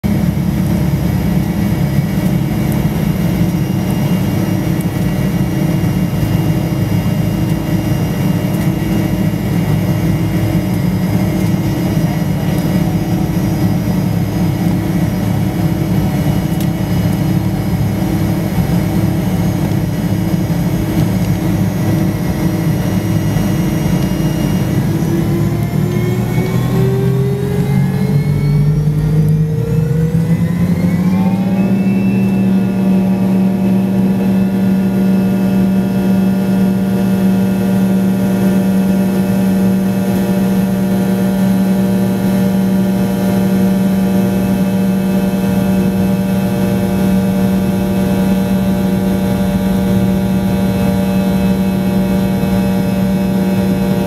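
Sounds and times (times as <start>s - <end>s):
jet engine drone and whine: 0.0s - 54.0s.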